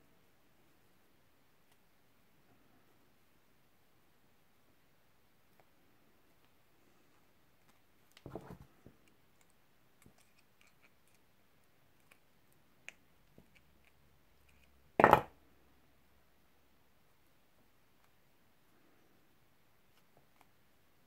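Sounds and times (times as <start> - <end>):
knocks on work surface: 15.0 - 15.3.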